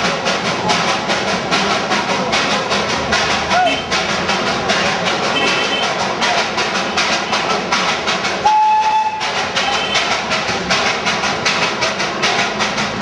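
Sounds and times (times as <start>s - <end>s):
steam locomotive chuffing: 0.0s - 13.0s
steam whistle blast: 8.4s - 10.0s.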